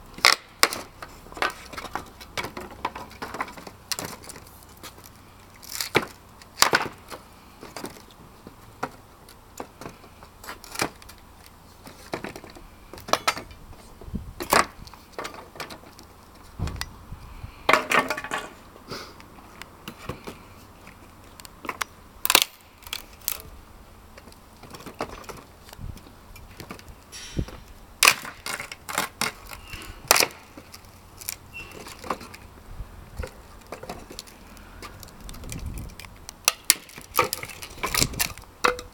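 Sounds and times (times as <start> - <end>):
wood cracking and splitting: 0.1 - 8.1, 21.4 - 23.5, 28.0 - 32.5, 33.1 - 38.9
loose boards and metal clattering: 0.2 - 17.0, 17.6 - 18.8, 24.1 - 32.5, 33.2 - 38.9.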